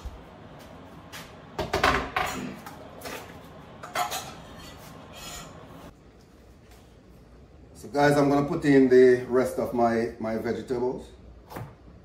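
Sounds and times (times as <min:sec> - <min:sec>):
utensils scraping and knocking pot: 0:02.1 - 0:05.9.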